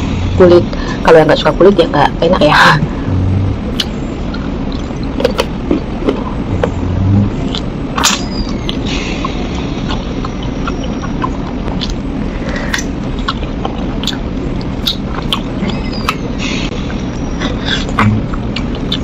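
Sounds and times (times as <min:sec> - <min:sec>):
steady low hum: 0:00.0 - 0:19.0
wet lip smacks while chewing: 0:07.5 - 0:16.3.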